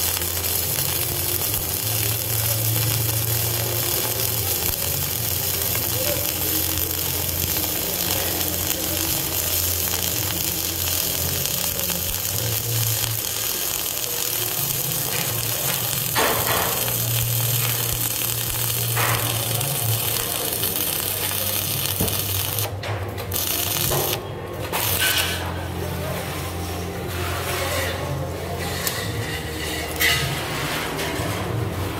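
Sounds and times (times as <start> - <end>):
welding arc crackling: 0.0 - 25.4.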